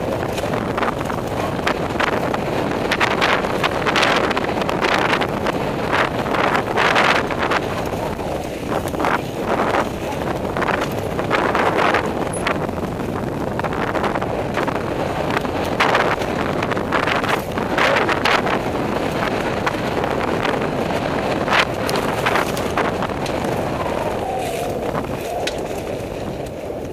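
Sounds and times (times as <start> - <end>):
bike tyre noise and rattle: 0.0 - 26.9
wind buffeting microphone: 0.0 - 26.9.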